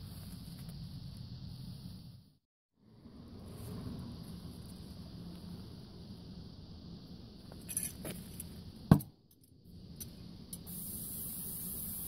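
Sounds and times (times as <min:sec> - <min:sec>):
steady low hum: 0:00.0 - 0:12.0
high hiss: 0:09.7 - 0:12.0.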